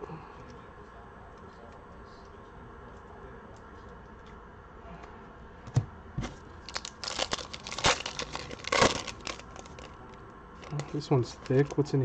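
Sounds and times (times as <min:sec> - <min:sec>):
foil wrapper crinkling and tearing: 0:06.6 - 0:11.8.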